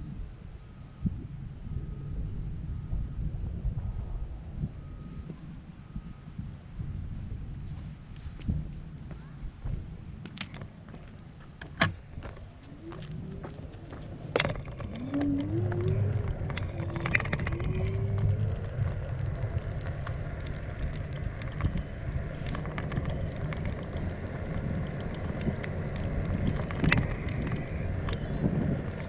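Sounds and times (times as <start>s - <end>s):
wavering low whine: 0.0s - 29.0s
wind on the microphone: 0.0s - 29.0s
tyres rolling over asphalt: 9.8s - 29.0s
rattles and clicks: 10.3s - 29.0s.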